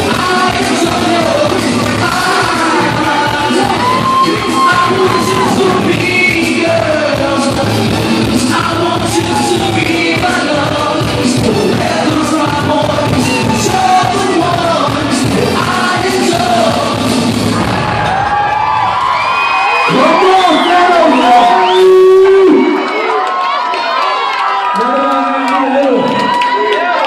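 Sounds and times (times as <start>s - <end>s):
man singing into a microphone: 0.0s - 17.3s, 19.9s - 22.7s
dance track with steady beat: 0.0s - 17.9s
crowd shouting: 0.1s - 7.1s, 8.5s - 11.0s, 11.6s - 14.9s, 17.5s - 27.0s.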